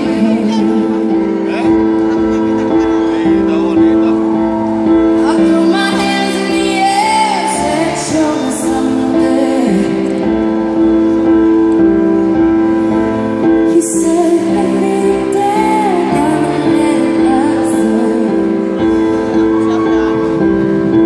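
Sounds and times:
woman singing: 0.0 - 1.4, 5.1 - 10.7, 13.5 - 18.8
held keyboard chords: 0.0 - 21.0.

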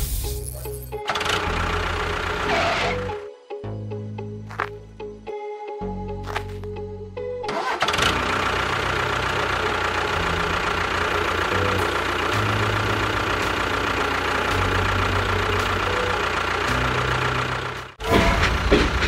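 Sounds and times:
tractor engine running: 0.0 - 3.2, 7.4 - 19.0.

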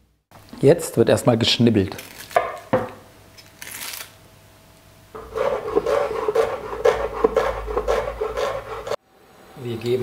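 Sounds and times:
knife chopping on wooden board: 5.2 - 9.0
knife scraping board: 5.2 - 9.0.

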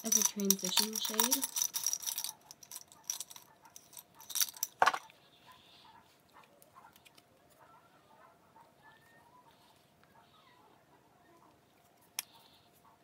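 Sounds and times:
brushes clinking in glass jar: 0.0 - 5.0.

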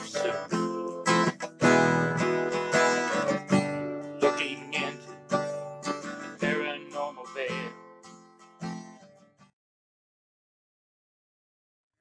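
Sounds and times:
acoustic guitar strumming chords: 0.0 - 9.5.

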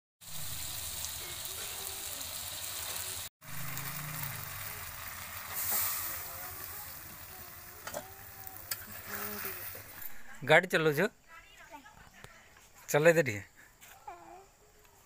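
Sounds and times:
water hissing on hot pan: 0.2 - 10.1
curry sizzling in a pan: 0.2 - 10.2.

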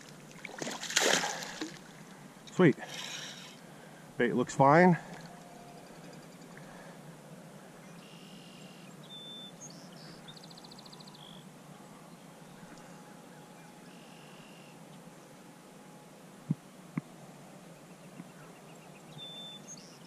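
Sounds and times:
faint outdoor background noise: 0.0 - 20.0
bird calls: 17.8 - 20.0.

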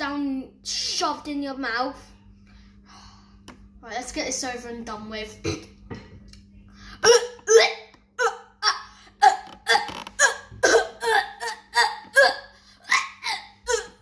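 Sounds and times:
boy gagging: 7.0 - 14.0.

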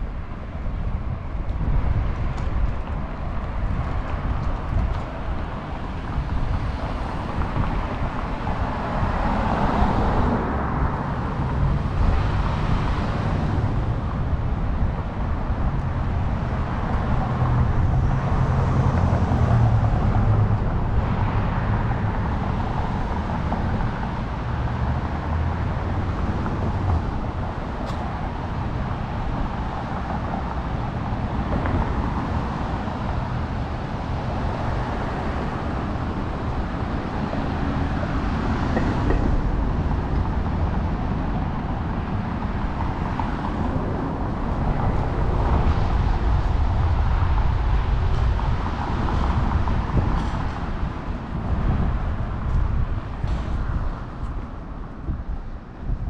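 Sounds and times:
cars driving past: 0.0 - 56.0.

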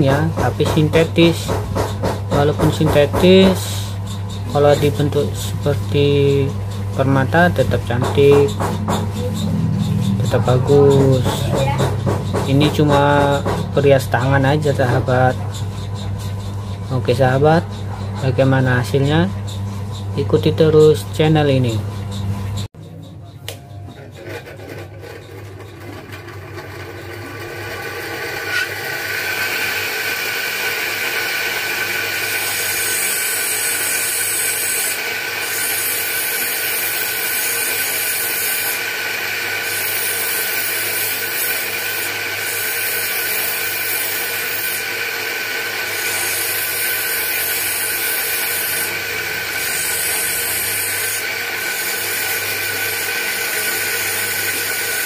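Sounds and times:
bench grinder whine: 0.0 - 55.0
stone grinding hiss: 27.6 - 55.0.

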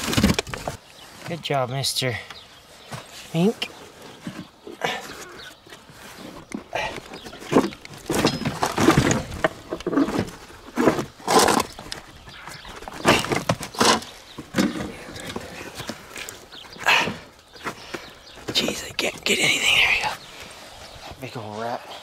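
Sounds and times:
animal noises: 0.0 - 22.0
scrap metal and tyres scraping: 2.8 - 17.0.

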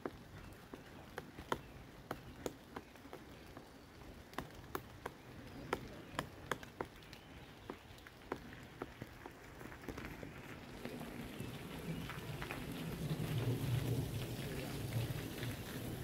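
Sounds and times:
woodpecker knocking on bark: 0.0 - 10.0.

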